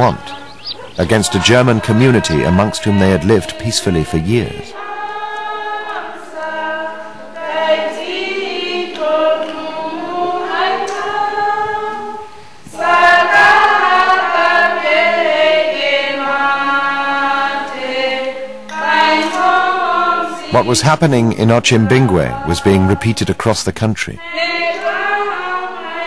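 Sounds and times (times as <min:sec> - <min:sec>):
choir singing: 0:00.0 - 0:23.6, 0:24.2 - 0:26.0.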